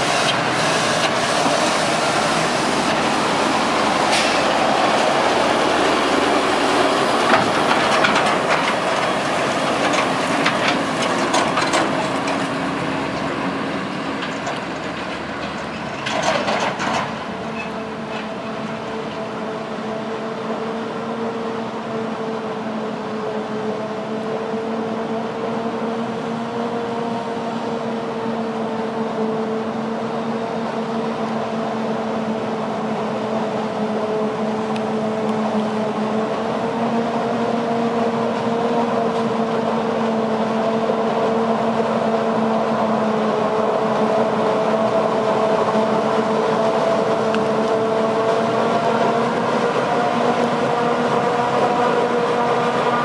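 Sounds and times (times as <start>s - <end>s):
tractor engine running: 0.0s - 19.5s
forage harvester drone and whine: 0.0s - 53.0s.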